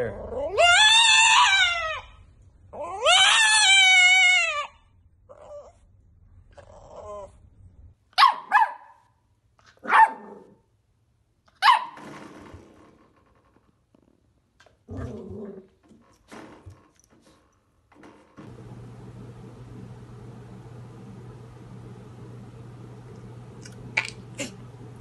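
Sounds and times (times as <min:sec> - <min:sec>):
dog howling: 0:00.3 - 0:02.1, 0:02.8 - 0:05.7
dog yipping: 0:00.3 - 0:02.2, 0:02.8 - 0:05.8, 0:08.1 - 0:09.1, 0:09.8 - 0:10.4, 0:11.6 - 0:12.0.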